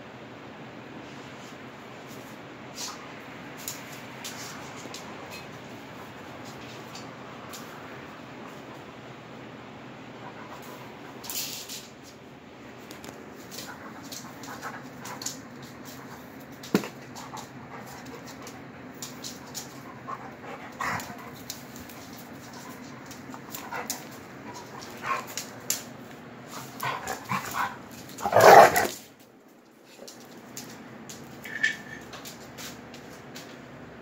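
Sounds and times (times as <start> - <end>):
dogs play-wrestling: 13.0 - 29.1.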